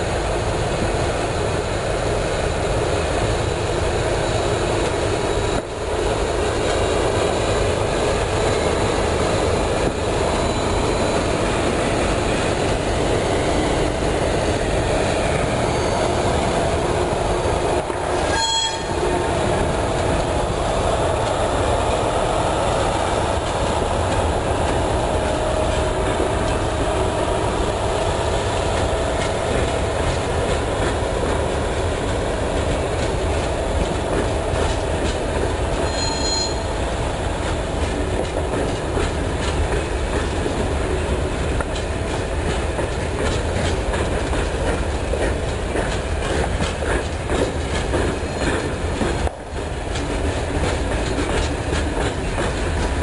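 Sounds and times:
freight train wagons rumbling: 0.0 - 53.0
train wheel squeal: 4.1 - 5.6, 6.6 - 17.0, 18.2 - 19.2, 35.8 - 36.9
wheels clacking over rail joints: 4.8 - 53.0.

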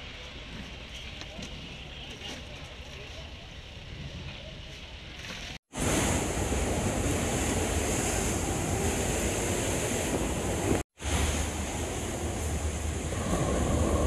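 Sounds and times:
faint outdoor background noise: 0.0 - 14.0
wind rumbling on microphone: 0.0 - 14.0
waves breaking on a beach: 5.7 - 14.0.

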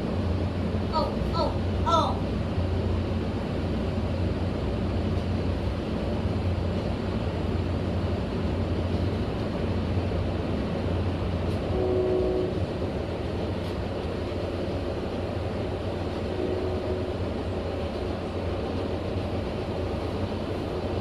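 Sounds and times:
train wheels rumbling on track: 0.0 - 21.0.

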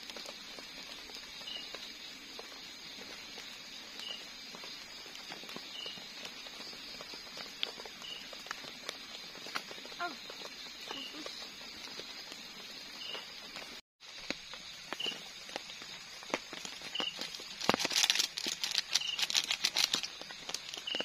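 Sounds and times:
crackling and rustling of pouring: 0.0 - 21.0
high hum of insects: 0.0 - 21.0
clicks and knocks in a pot: 14.2 - 21.0.

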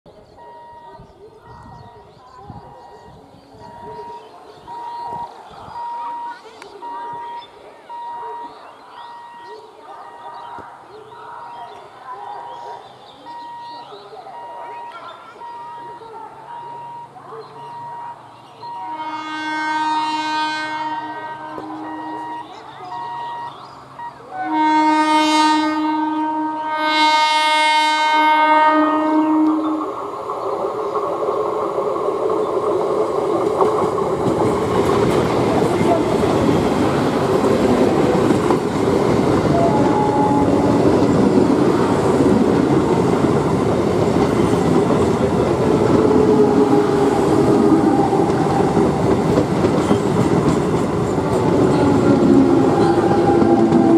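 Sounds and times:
train horn blasts: 17.8 - 23.6, 24.3 - 29.9, 39.4 - 41.1, 45.8 - 49.0, 51.6 - 53.9
train wheels rumbling and clattering: 29.5 - 53.9.

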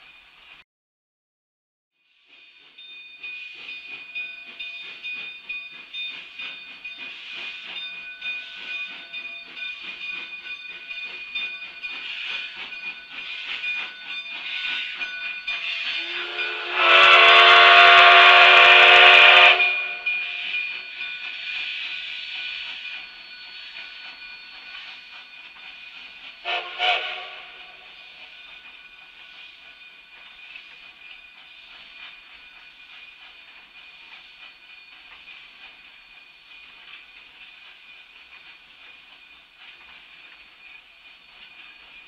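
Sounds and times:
steam locomotive chuffing: 2.1 - 42.0
steam hissing: 2.2 - 42.0
steam whistle blast: 15.8 - 20.1, 26.4 - 27.9.

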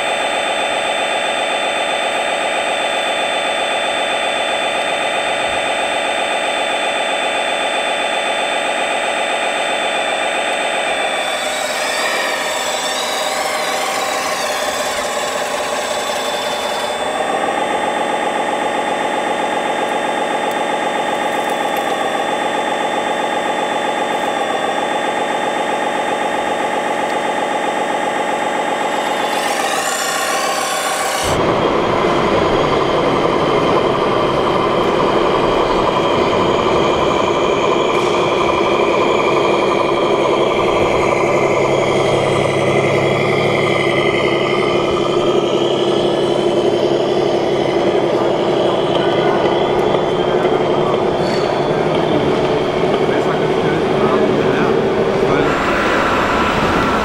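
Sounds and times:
engine-like hum: 0.0 - 57.0
hydraulic pump whining: 0.0 - 57.0
rough engine-like rumble: 31.3 - 57.0.

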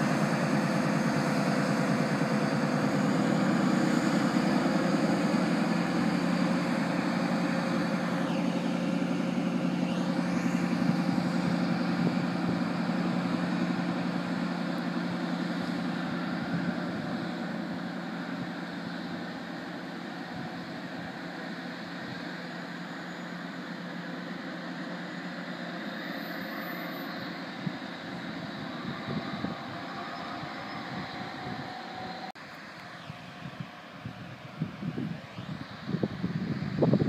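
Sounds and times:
diesel train engine drone: 0.0 - 37.0
wind buffeting microphone: 27.6 - 32.3, 32.9 - 37.0.

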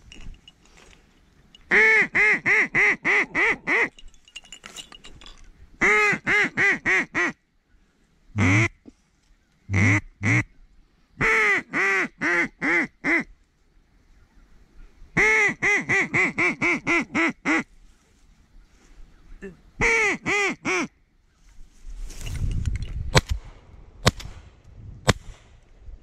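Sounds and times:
duck call quacks: 1.7 - 3.9, 5.8 - 7.4, 8.4 - 8.8, 9.7 - 10.5, 15.2 - 17.7, 19.8 - 20.9.

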